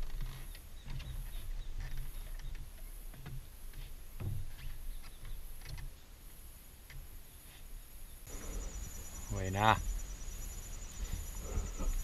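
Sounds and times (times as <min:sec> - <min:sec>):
insects droning: 0:00.0 - 0:12.0
soft thumps: 0:04.2 - 0:04.7
low rumbling: 0:08.2 - 0:12.0.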